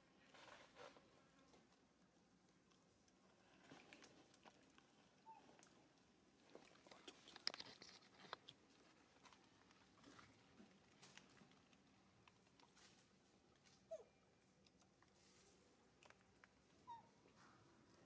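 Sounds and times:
small ticks and rustling: 0.0s - 18.0s.

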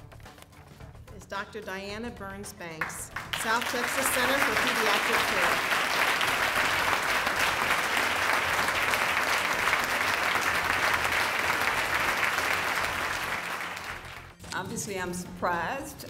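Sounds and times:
audience applauding: 2.8s - 14.4s.

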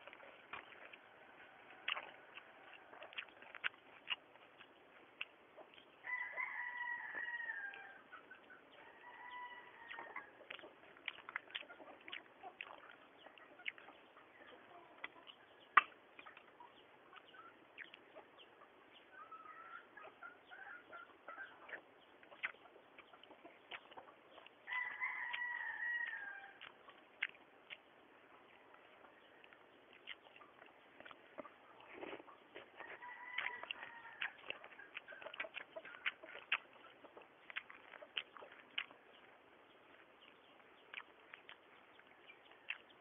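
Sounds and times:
rooster crowing: 6.0s - 8.0s, 8.8s - 10.1s, 24.7s - 26.6s, 32.8s - 34.4s.

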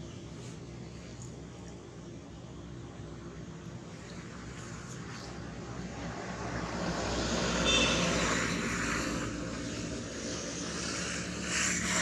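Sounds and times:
passing vehicle engine: 4.0s - 12.0s.

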